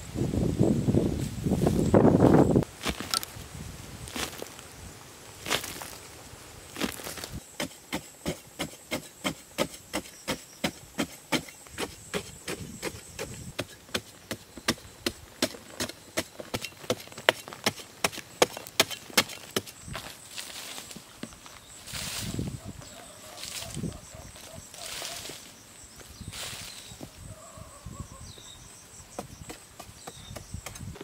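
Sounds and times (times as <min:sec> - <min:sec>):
loose soil rustling: 0:00.0 - 0:27.8
digging tool chopping earth: 0:06.8 - 0:19.8, 0:29.1 - 0:31.0.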